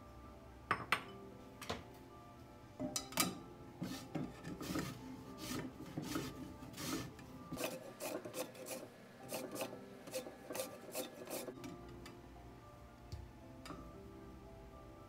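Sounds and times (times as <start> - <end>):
lemon scraping on grater: 3.8 - 11.5.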